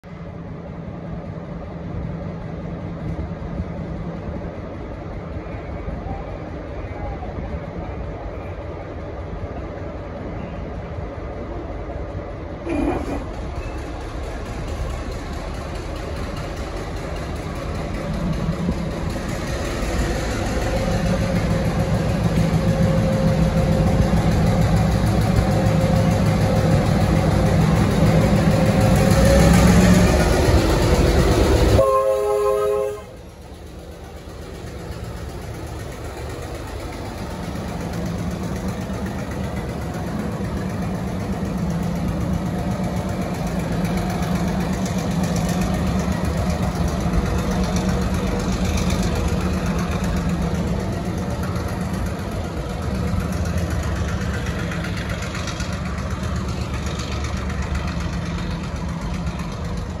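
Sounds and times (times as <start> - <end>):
diesel locomotive engine drone: 0.0 - 60.0
three-chime locomotive horn: 31.8 - 33.2.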